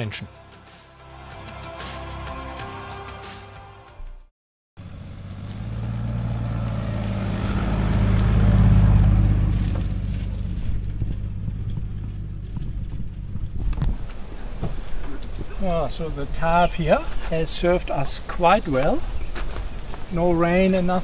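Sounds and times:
vehicle engine running: 4.8 - 20.6
knocks and rattles: 9.7 - 15.2.

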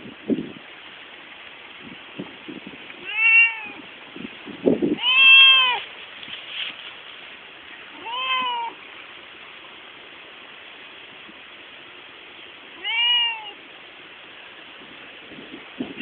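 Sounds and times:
cat meowing: 3.0 - 3.8, 5.0 - 5.9, 7.9 - 8.8, 12.8 - 13.6.

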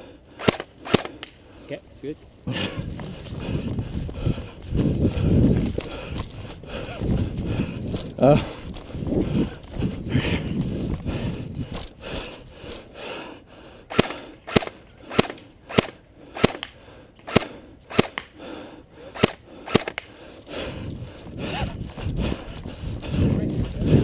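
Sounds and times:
airsoft pistol shots: 0.4 - 1.3, 13.9 - 16.7, 17.3 - 18.3, 19.2 - 20.0.

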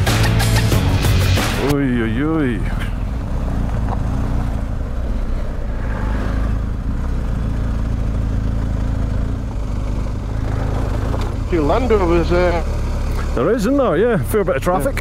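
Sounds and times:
motorcycle engine running: 6.5 - 15.0.

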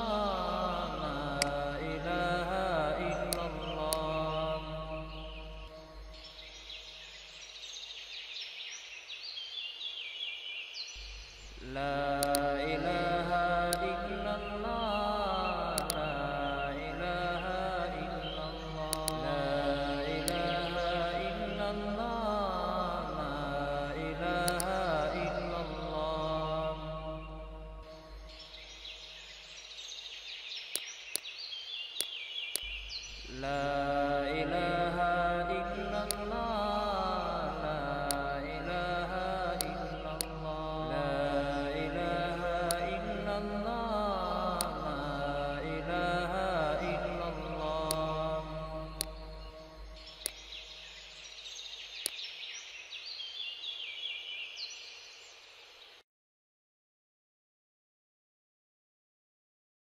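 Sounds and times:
chanted vocals: 0.0 - 7.1, 11.0 - 29.2, 33.1 - 50.8
high chirping sounds: 0.0 - 8.0, 10.9 - 53.0
sharp clicks: 1.3 - 1.7, 2.5 - 4.4, 11.4 - 14.8, 15.7 - 16.4, 18.8 - 21.0, 24.4 - 25.2, 32.0 - 33.6, 35.7 - 37.0, 37.9 - 43.5, 44.3 - 45.1, 46.0 - 50.9.

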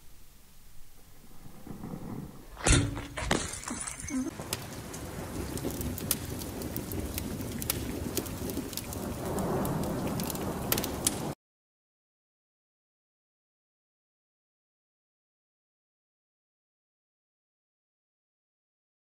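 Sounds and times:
crackles and sharp ticks: 4.3 - 11.4.

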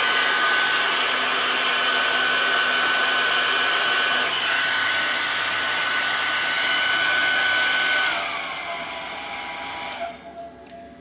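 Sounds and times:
hair dryer blowing: 0.0 - 10.3.

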